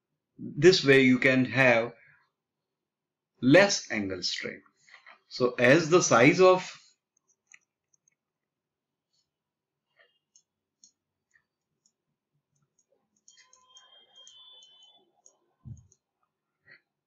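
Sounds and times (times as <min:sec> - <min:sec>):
faint clicks: 0:09.9 - 0:16.0.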